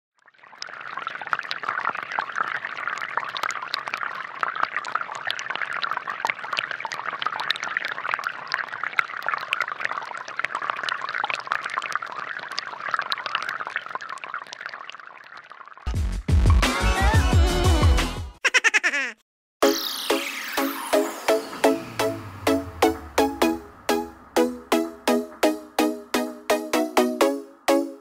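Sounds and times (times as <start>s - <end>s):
water jets splashing into basin: 0.3s - 15.9s.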